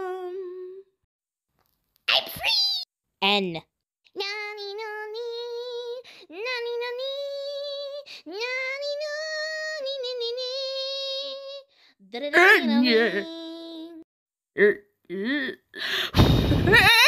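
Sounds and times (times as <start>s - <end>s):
high voice singing held notes: 0.0s - 0.9s.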